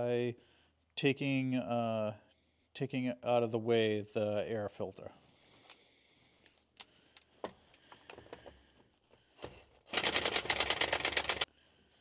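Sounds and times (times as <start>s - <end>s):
rapid mechanical clicking: 9.9s - 11.5s.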